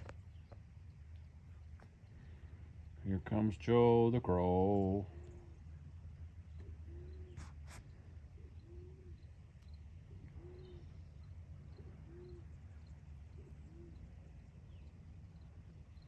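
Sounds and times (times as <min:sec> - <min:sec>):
small birds chirping: 0:00.0 - 0:16.0
dove cooing: 0:06.5 - 0:09.3, 0:10.0 - 0:14.4.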